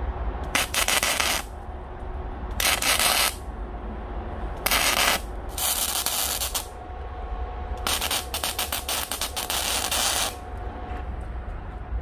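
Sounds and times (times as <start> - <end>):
steady low hum: 0.0 - 12.0
arc welder crackling: 0.5 - 1.5, 2.5 - 3.4, 4.6 - 6.7, 7.8 - 10.4.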